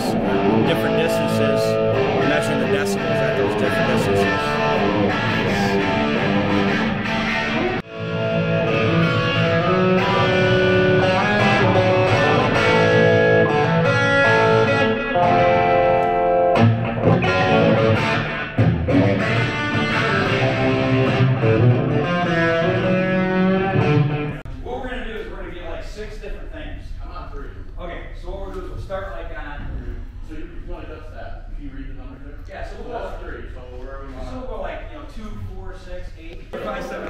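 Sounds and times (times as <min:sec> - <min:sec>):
electric guitar ringing notes: 0:00.0 - 0:24.4.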